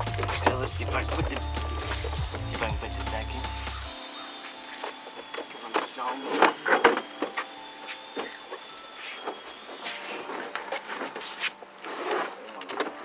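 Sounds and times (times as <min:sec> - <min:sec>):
rustling and scraping: 0:04.4 - 0:13.0.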